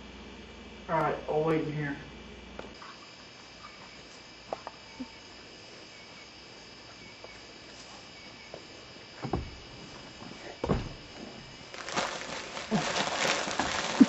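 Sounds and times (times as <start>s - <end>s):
crickets chirring: 0.2s - 14.0s
dull thumps: 9.2s - 14.0s.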